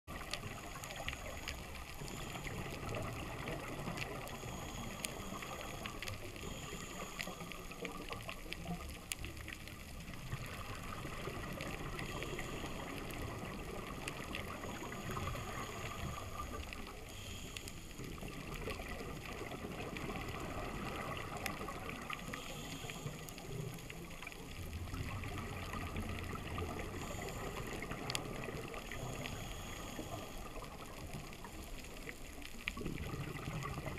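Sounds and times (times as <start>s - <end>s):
underwater watery wash: 0.1s - 33.9s
low bubbling: 23.1s - 30.0s, 30.7s - 33.9s.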